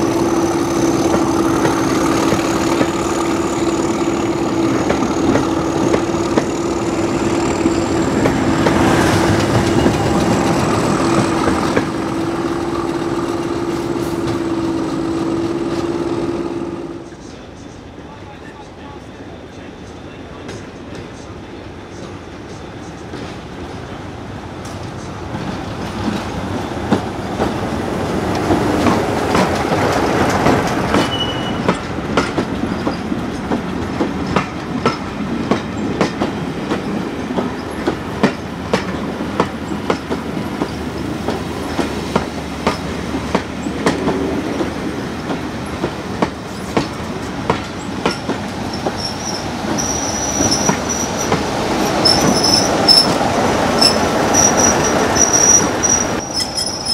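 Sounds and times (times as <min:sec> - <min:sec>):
diesel train running: 0:00.0 - 0:56.9
faint high wheel squeal: 0:31.0 - 0:31.8, 0:48.2 - 0:51.4, 0:52.0 - 0:53.2, 0:53.8 - 0:56.9.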